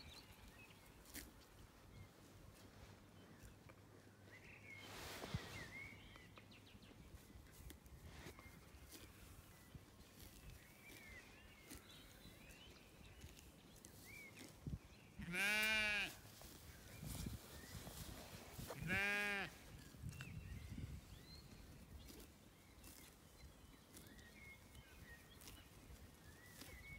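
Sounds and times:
sheep bleating: 0:15.2 - 0:16.2, 0:18.8 - 0:19.6.

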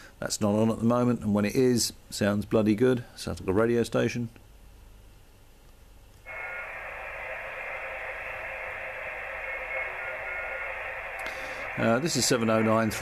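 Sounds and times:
radio static hiss: 0:06.3 - 0:13.0.

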